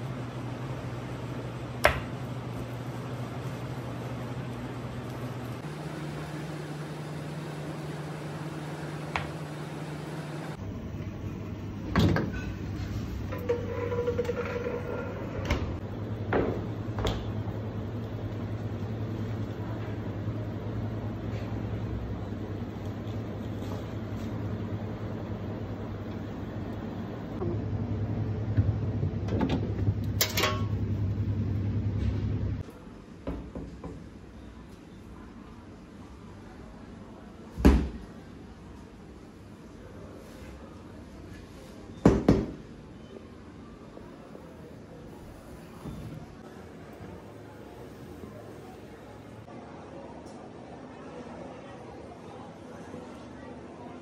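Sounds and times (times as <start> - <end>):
kitchen equipment hum: 0.0 - 32.9, 43.7 - 49.5.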